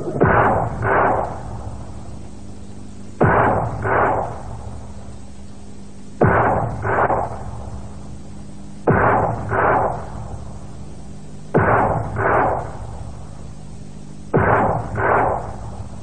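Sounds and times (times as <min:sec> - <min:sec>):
sudden heavy thuds: 0:00.0 - 0:01.3
steady low hum: 0:00.0 - 0:16.0.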